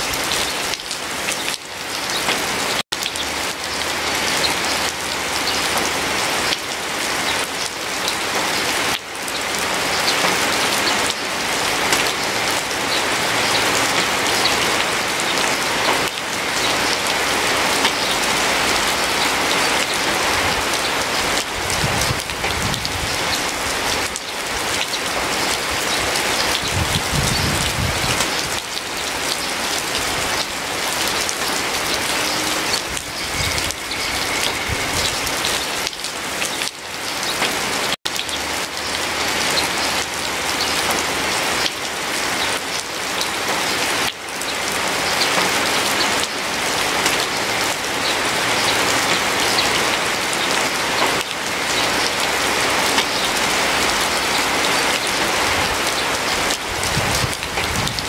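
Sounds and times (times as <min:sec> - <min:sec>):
heavy rain falling: 0:00.0 - 0:58.0.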